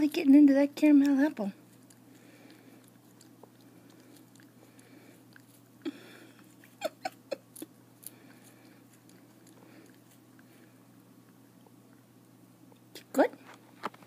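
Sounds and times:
cat chewing: 1.0s - 12.2s.

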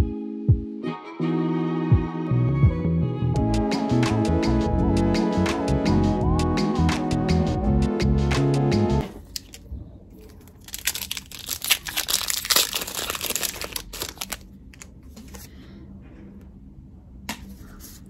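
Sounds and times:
foil wrapper tearing and crinkling: 10.2s - 14.9s.

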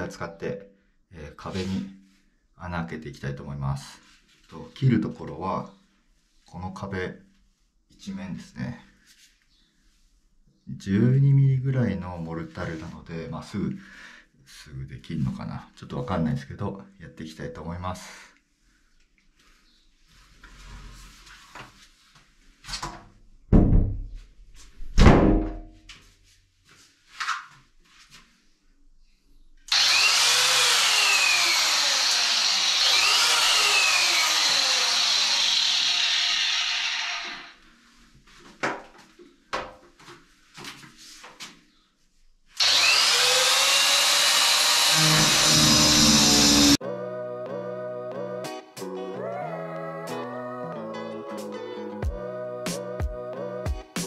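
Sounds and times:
disc grinder cutting into mortar: 29.7s - 37.6s, 42.6s - 46.8s.

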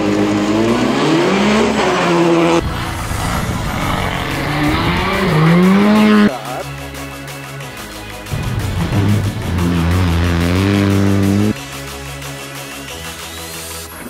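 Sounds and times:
rally car engine revving: 0.0s - 7.1s, 7.7s - 11.8s.

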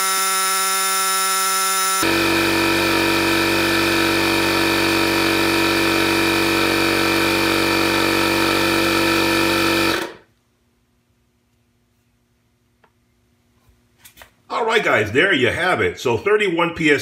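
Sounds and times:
air compressor pump running: 0.0s - 10.3s.

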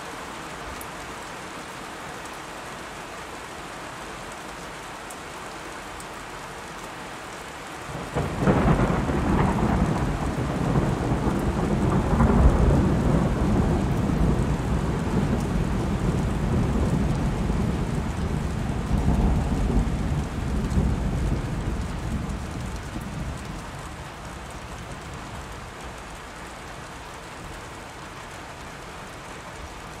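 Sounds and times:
steady rain: 0.0s - 30.0s
thunder rumbling: 7.9s - 25.1s.

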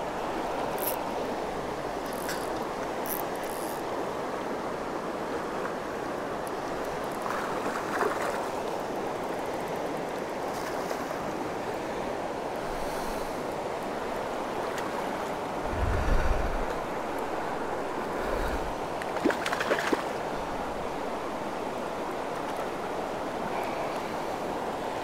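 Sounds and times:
low rumble: 15.6s - 16.7s.

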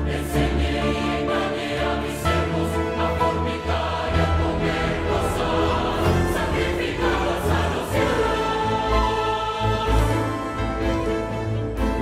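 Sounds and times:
mixed choir singing in harmony: 0.0s - 12.0s
deep steady bass: 4.1s - 8.4s.

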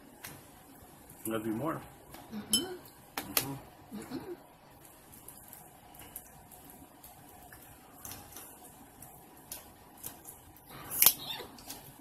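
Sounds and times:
crab shells cracking: 9.4s - 12.0s.

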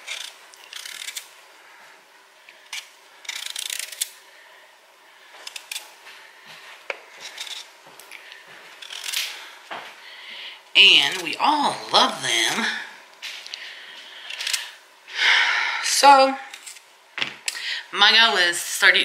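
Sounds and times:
peeler scraping sweet potato: 0.0s - 1.3s, 2.7s - 4.2s, 7.2s - 7.7s, 8.8s - 9.3s.

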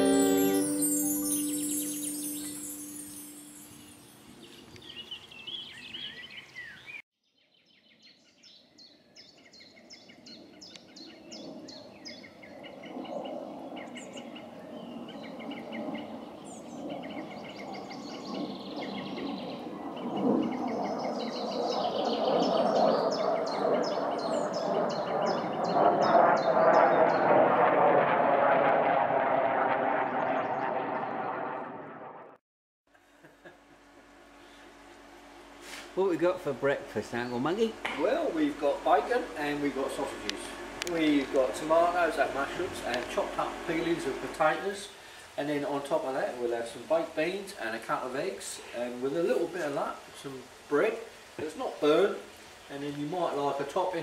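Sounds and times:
small birds chirping: 0.0s - 27.3s
steady outdoor noise: 32.9s - 54.0s.

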